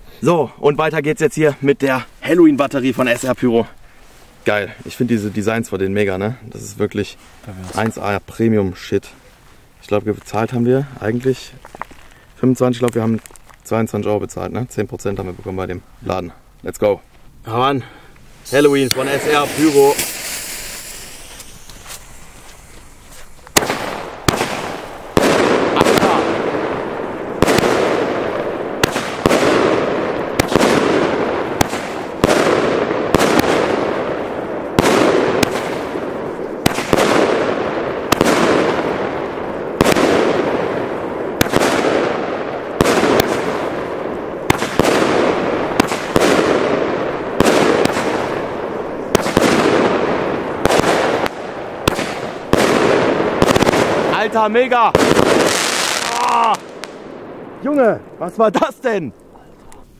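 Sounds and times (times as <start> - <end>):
firework bangs: 18.4 - 58.7.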